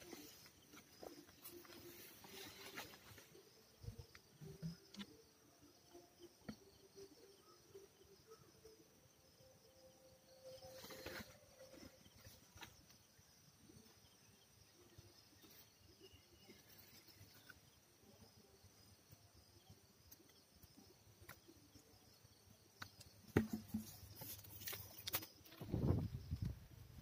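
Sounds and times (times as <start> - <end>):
rustling of palm fronds: 0.0 - 3.5
faint outdoor ambience: 0.0 - 27.0.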